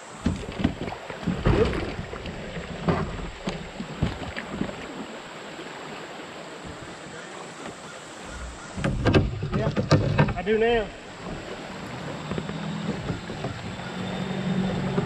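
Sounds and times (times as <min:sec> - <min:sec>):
creek water rushing: 0:00.0 - 0:15.0
kayak paddle strokes: 0:00.0 - 0:15.0
water splashing: 0:00.0 - 0:15.0
hollow knocks on plastic kayak: 0:02.8 - 0:04.8.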